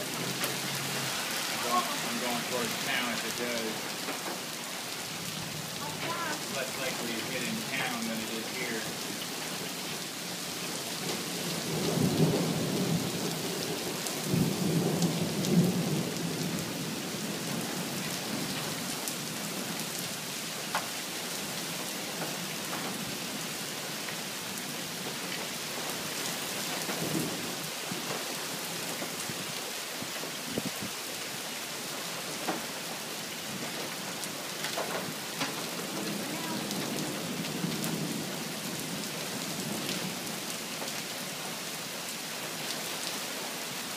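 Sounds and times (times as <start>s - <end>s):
steady rain: 0.0s - 43.9s
thunder rumbling: 11.4s - 18.5s.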